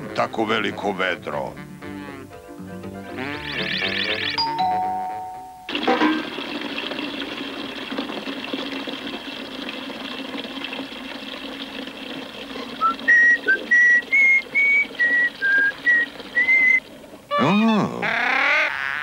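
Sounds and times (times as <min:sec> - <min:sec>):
whistled tune: 0:03.1 - 0:05.6, 0:12.8 - 0:16.8
water running from taps: 0:03.4 - 0:04.4, 0:05.7 - 0:17.3.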